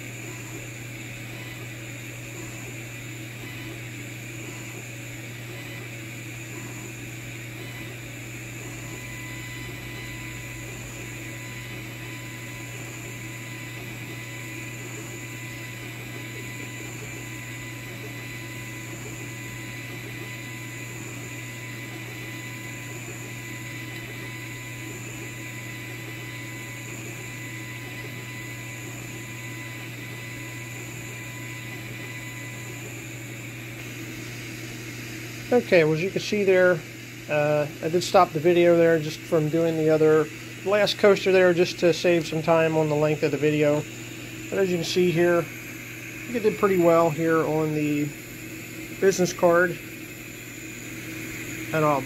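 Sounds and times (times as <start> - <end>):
thin steady whine: 0.0 - 52.0
fan hum and hiss: 32.8 - 52.0.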